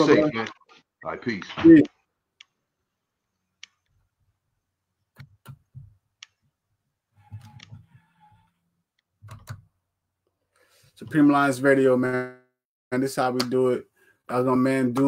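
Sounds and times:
faint clicks and taps at desk: 1.8 - 4.1, 5.0 - 6.6, 8.9 - 10.4.

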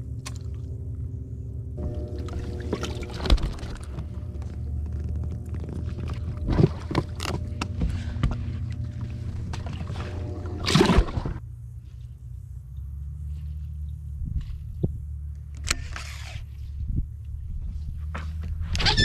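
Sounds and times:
steady low hum: 0.0 - 18.8.

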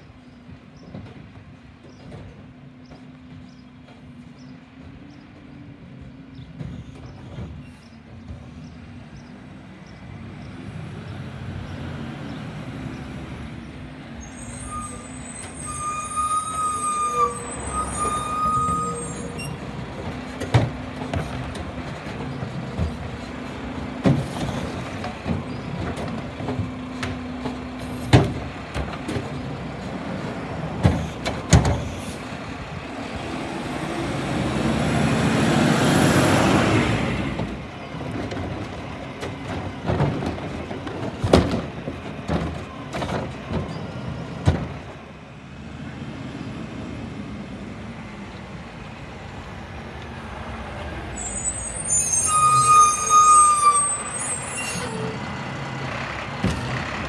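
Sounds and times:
garbage truck engine: 0.0 - 57.0
high brake squeal: 14.2 - 19.8, 51.1 - 55.4
cart clanking against hopper: 14.5 - 32.7, 34.9 - 45.1, 56.2 - 57.0.

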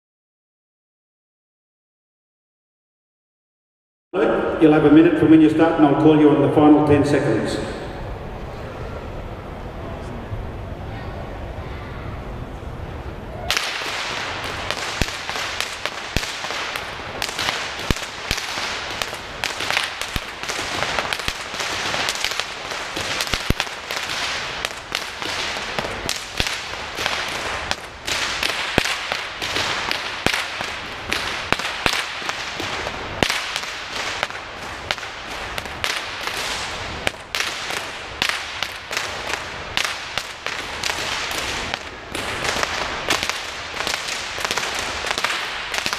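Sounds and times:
whip cracking: 13.5 - 45.9.

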